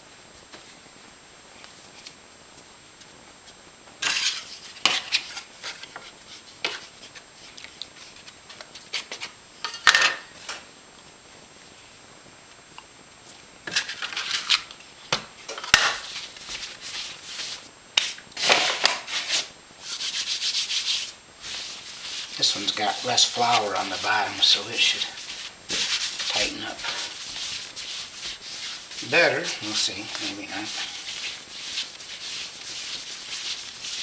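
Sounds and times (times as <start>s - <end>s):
dough scraping on tile countertop: 4.0s - 9.4s, 15.7s - 34.0s.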